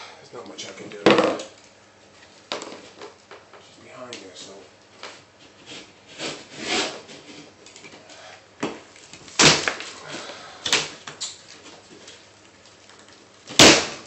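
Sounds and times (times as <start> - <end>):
paper tearing: 5.7 - 7.2
drywall cracking and crunching: 8.7 - 14.0.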